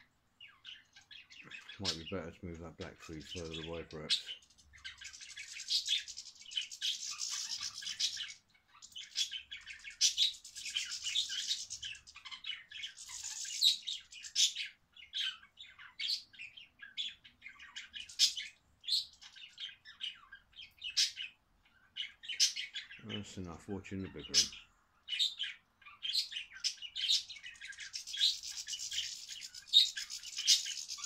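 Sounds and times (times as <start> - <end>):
birds chirping and twittering: 0.0 - 31.0
bird squawks: 3.1 - 31.0.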